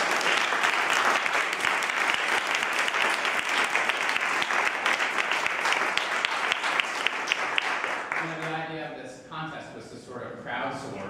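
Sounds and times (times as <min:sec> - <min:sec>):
crowd clapping: 0:00.0 - 0:08.7.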